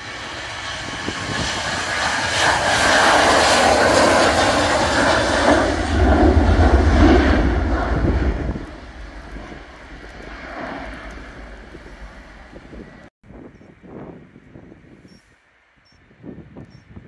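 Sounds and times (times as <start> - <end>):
deep rumble: 0.0 - 13.1
jet engines at takeoff: 0.0 - 13.7.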